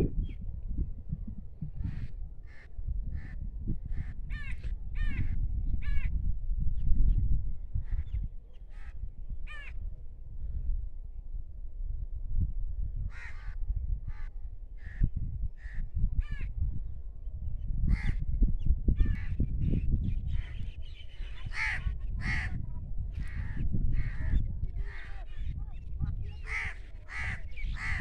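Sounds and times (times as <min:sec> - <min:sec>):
crows cawing: 0:26.5 - 0:28.0.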